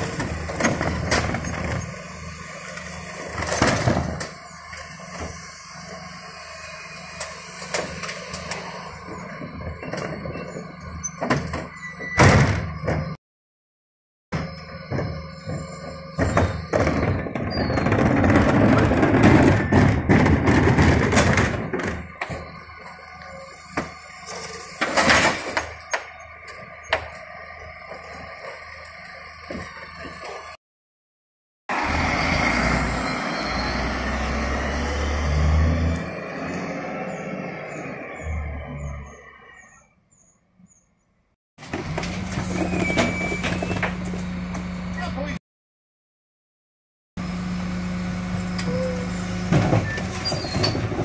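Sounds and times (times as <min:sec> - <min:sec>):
truck engine and hydraulics: 0:00.0 - 0:13.2, 0:14.3 - 0:30.6, 0:31.7 - 0:45.4, 0:47.2 - 0:51.0
wheelie bins knocking onto lifters: 0:14.4 - 0:22.5, 0:49.4 - 0:51.0
bins clattering as tipped: 0:16.2 - 0:22.1
brief squeal: 0:32.1 - 0:34.2, 0:42.5 - 0:43.9, 0:47.7 - 0:50.9.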